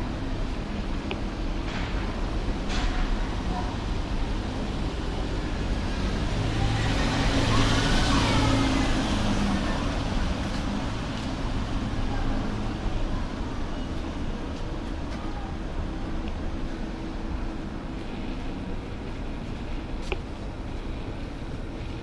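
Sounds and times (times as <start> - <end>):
steady low traffic hum: 0.0 - 22.0
vehicle passing: 4.7 - 11.9.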